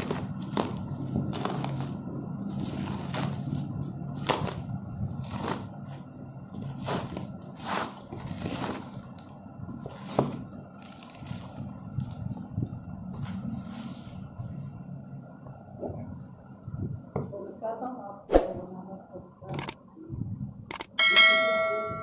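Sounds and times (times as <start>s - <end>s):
plastic and bubble wrap crinkling: 0.0s - 14.8s.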